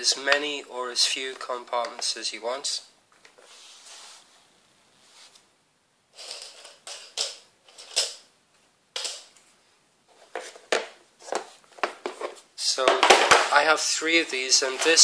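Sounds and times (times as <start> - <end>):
plastic box clicks and knocks: 10.4 - 13.7.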